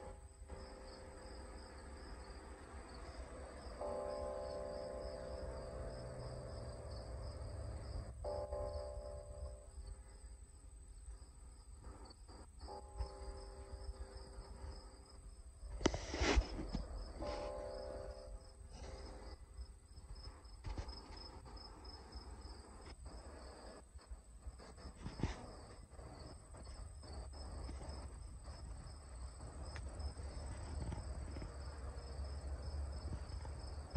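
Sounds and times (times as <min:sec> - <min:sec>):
high-pitched insect trill: 0:00.0 - 0:10.3
insects trilling: 0:00.0 - 0:33.9.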